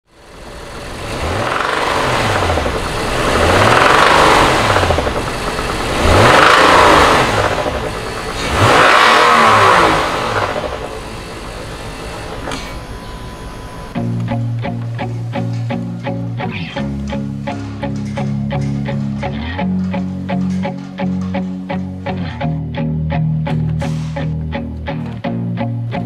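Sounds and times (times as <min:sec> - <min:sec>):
engine knocking: 0:00.1 - 0:12.7
car engine revving: 0:00.1 - 0:25.4.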